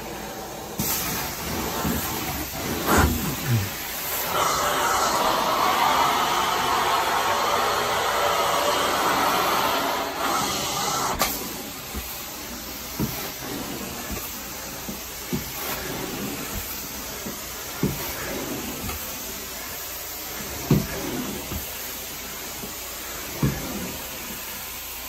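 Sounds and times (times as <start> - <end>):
carpet cleaner suction hiss: 0.0 - 25.0.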